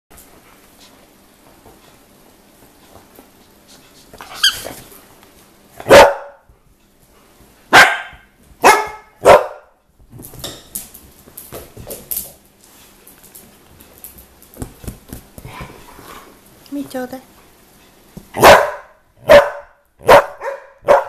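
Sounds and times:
dogs scuffling on tiled floor: 0:00.2 - 0:05.9, 0:10.0 - 0:18.4
squeaky toy squeak: 0:04.3 - 0:04.7
dog barking: 0:05.8 - 0:06.4, 0:07.7 - 0:09.7, 0:18.4 - 0:21.0.

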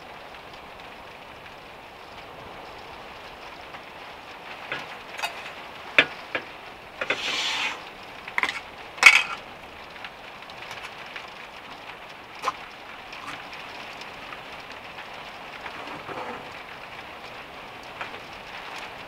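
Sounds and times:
rustle: 0:00.0 - 0:19.0
steady background hiss: 0:00.0 - 0:19.0.

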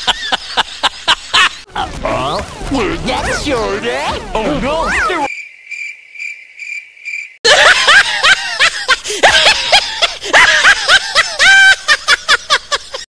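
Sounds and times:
high-pitched cartoon laughter: 0:07.5 - 0:13.0.

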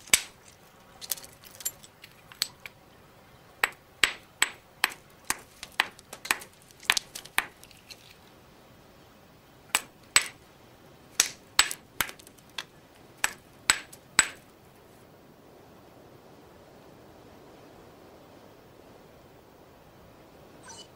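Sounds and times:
hammerstone striking stone: 0:03.6 - 0:07.6, 0:09.8 - 0:10.4, 0:11.2 - 0:12.3, 0:13.2 - 0:14.4.

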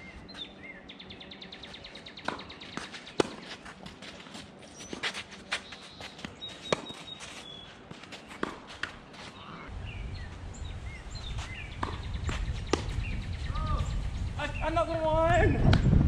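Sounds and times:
birds chirping: 0:00.0 - 0:16.0
tennis ball hitting racket and court: 0:02.2 - 0:09.3, 0:11.4 - 0:12.9
footsteps: 0:02.3 - 0:09.7
wind rumble on microphone: 0:09.7 - 0:16.0.

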